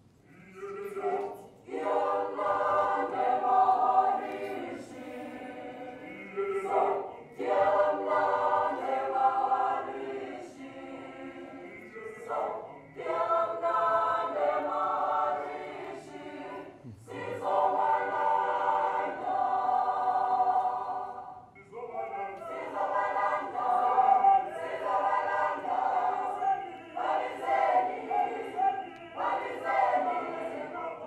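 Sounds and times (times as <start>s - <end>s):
mixed choir singing: 0.3s - 31.0s.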